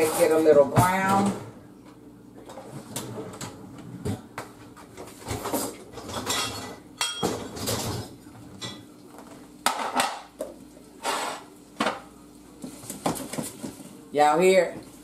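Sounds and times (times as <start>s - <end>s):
cookware set down on counter: 9.6s - 12.1s
spoon scraping a saucepan: 11.0s - 11.5s.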